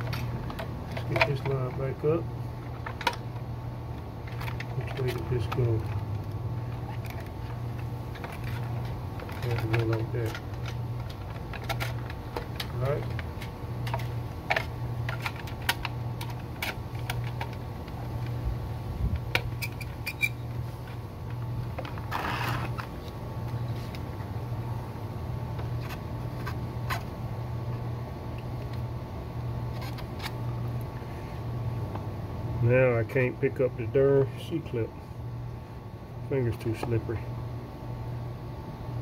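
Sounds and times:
low pulsing hum: 0.0s - 39.0s
plastic scraping: 4.2s - 18.3s, 19.2s - 24.1s.

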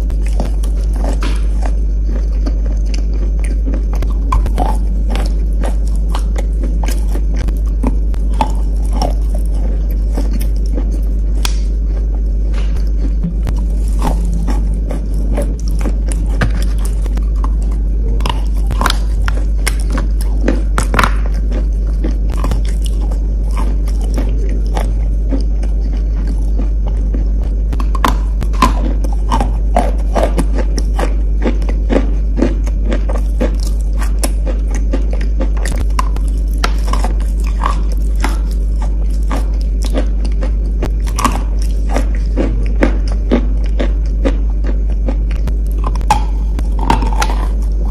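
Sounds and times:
low hum: 0.0s - 47.9s
person chewing crunchy chalk: 0.0s - 47.9s.

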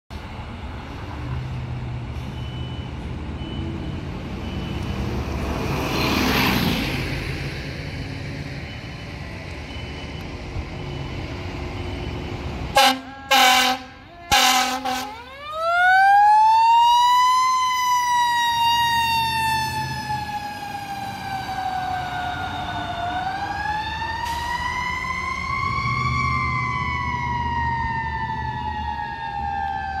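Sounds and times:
road traffic passing: 0.1s - 30.0s
fire engine siren wailing: 2.6s - 30.0s
fire engine air horn blasts: 12.7s - 15.4s.

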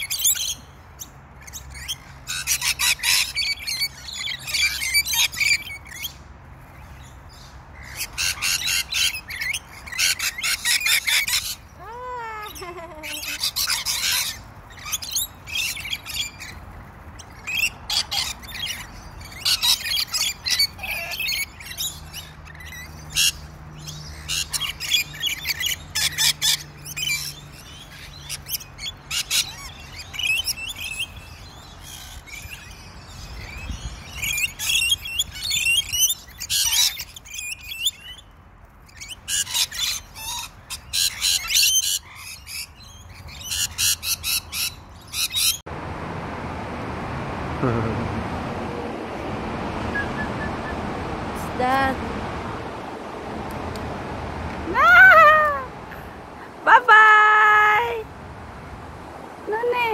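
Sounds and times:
lorikeets screeching and chattering: 0.0s - 45.6s.

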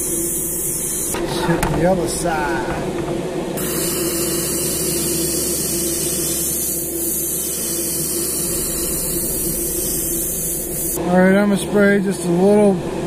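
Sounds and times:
airbrush spraying hiss: 0.0s - 1.2s, 3.6s - 11.0s
steady low hum: 0.0s - 13.0s.

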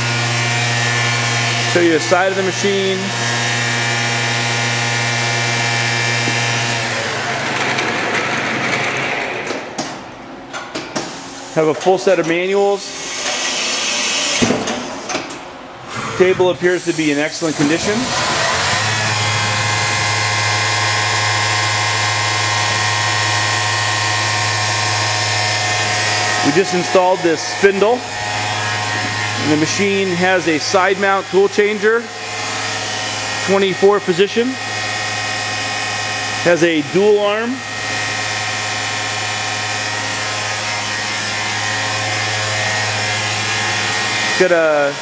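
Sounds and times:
machinery humming: 0.0s - 45.0s.

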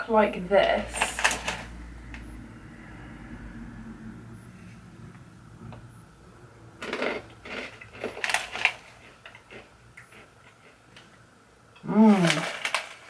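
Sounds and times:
crunchy snack being chewed: 6.8s - 11.0s.

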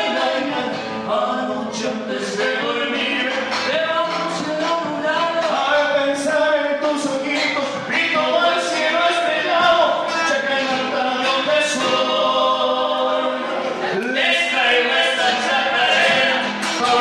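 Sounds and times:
person singing: 0.0s - 17.0s
strummed guitar: 0.0s - 17.0s
steady beat: 2.4s - 12.0s.

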